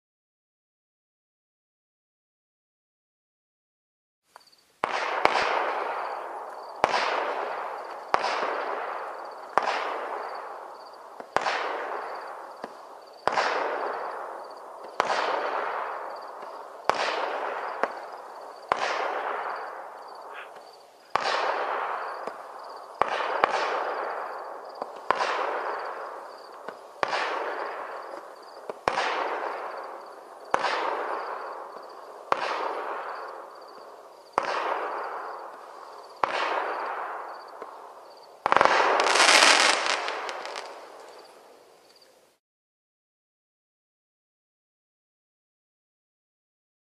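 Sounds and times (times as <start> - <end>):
firework shots firing: 4.8 - 37.8, 38.4 - 41.4
firework hiss: 38.4 - 41.4.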